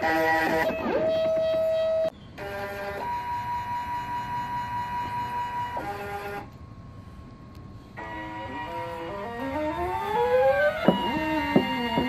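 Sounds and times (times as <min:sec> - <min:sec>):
faint hum: 0:00.0 - 0:12.0
stepper motors whining: 0:07.9 - 0:12.0.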